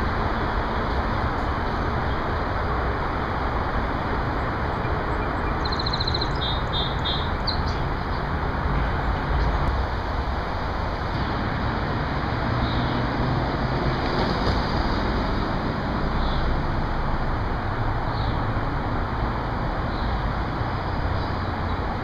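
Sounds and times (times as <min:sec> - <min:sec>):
small bird chirping: 0:05.3 - 0:07.8.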